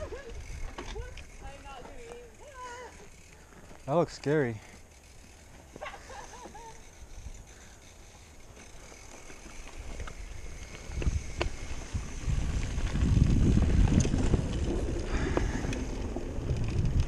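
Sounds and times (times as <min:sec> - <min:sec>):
mountain bike rolling on dirt: 0:00.0 - 0:17.0
bike tyres rumbling over wooden bridge: 0:08.3 - 0:17.0.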